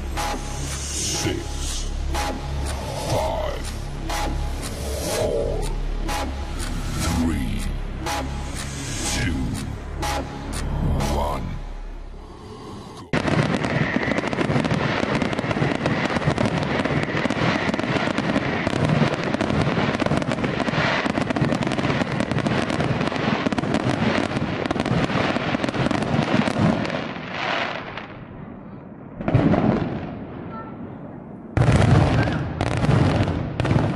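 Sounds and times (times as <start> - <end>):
fireworks bangs and crackles: 13.1 - 33.9.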